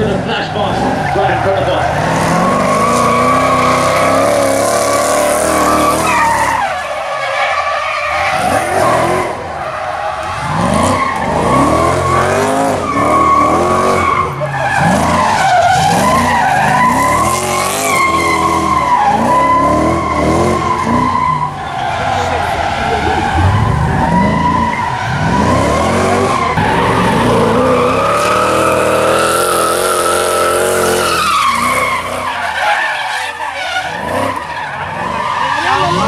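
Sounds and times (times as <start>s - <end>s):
car engine revving hard: 0.0s - 6.6s, 10.2s - 21.3s, 22.0s - 32.3s
tyre squeal: 0.8s - 36.0s.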